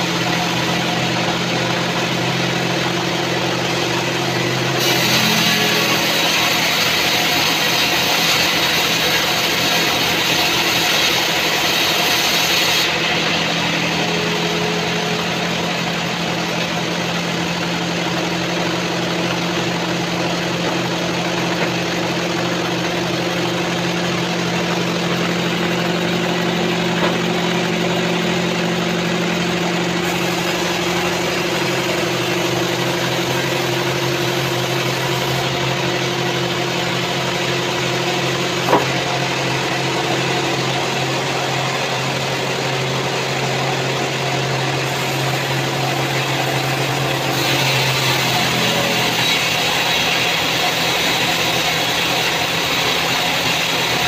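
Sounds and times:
saw motor humming: 0.0 - 54.0
band saw blade hissing through wood: 4.6 - 15.6, 30.0 - 35.5, 44.8 - 54.0.

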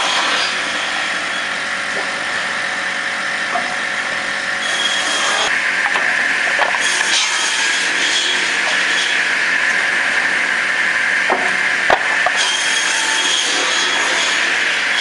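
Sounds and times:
saw running: 0.0 - 15.0
wood knocks: 11.3 - 12.4.

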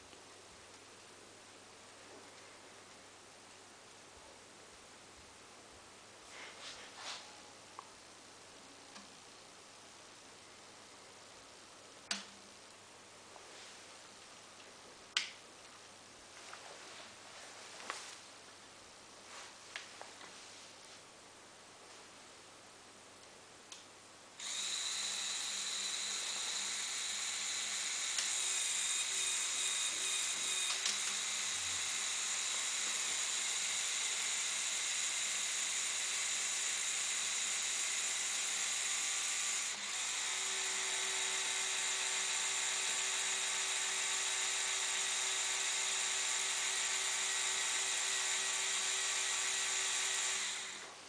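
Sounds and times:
small electric motor whirring: 24.4 - 50.9.

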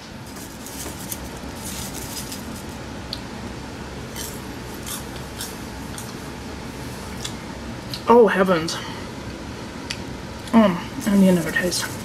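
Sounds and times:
low steady hum: 0.0 - 12.0
person chewing popcorn: 4.1 - 6.2.

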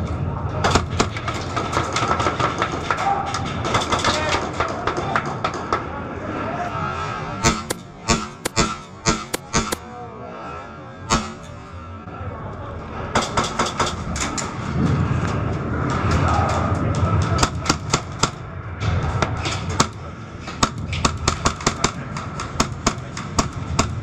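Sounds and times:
airsoft gunshots clicking: 7.4 - 9.8
bbs striking: 7.4 - 9.8, 11.1 - 11.6.

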